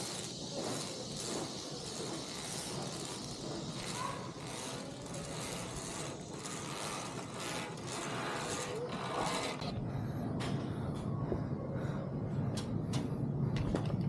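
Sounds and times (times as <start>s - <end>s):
metal harness gear clicking on cable: 0.0s - 9.7s.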